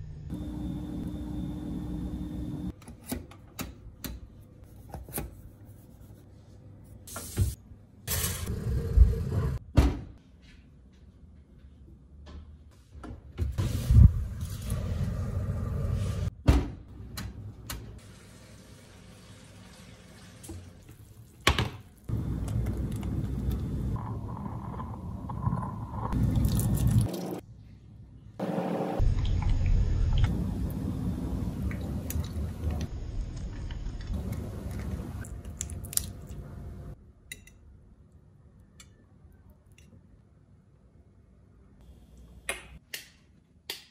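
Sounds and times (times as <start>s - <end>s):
oven rumbling hum: 0.0s - 2.7s, 13.5s - 19.0s, 22.1s - 27.1s, 28.4s - 37.0s.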